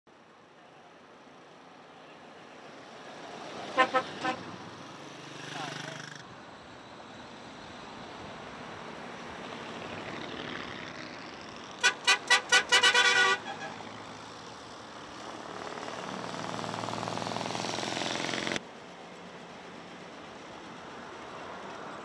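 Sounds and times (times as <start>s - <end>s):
traffic noise: 0.1s - 22.0s
car horn honks: 3.8s - 4.4s, 11.8s - 13.8s
vehicle engine passing: 13.3s - 18.6s.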